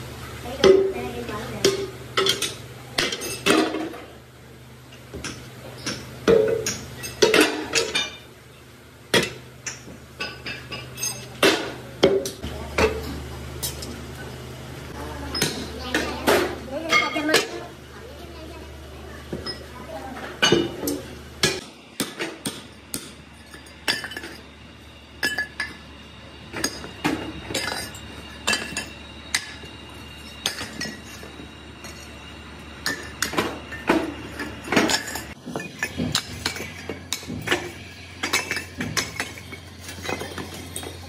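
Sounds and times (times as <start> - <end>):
hammer striking cast iron: 20.4 - 24.4.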